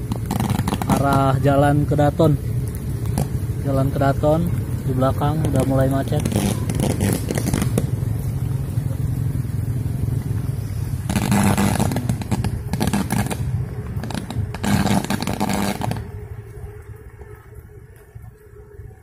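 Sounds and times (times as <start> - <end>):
electrical cable arcing and buzzing: 0.0 - 4.6, 5.2 - 8.3, 11.0 - 16.3
low vehicle rumble: 0.0 - 19.0.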